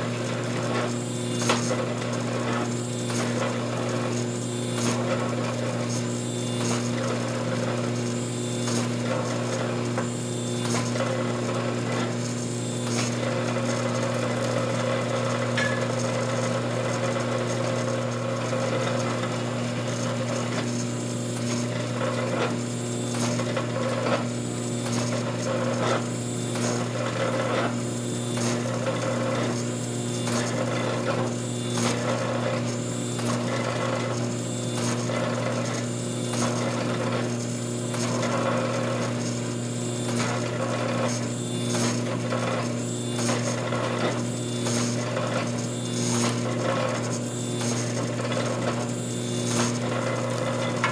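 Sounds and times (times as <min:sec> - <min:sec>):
hydraulic pump motor humming: 0:00.0 - 0:50.9.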